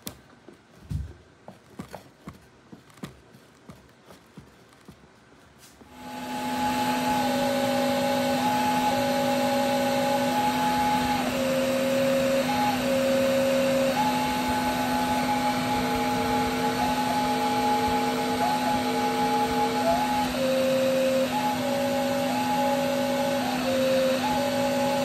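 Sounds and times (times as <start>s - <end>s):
vacuum cleaner running: 5.8s - 25.0s
paper organ pipes whistling notes: 5.9s - 25.0s.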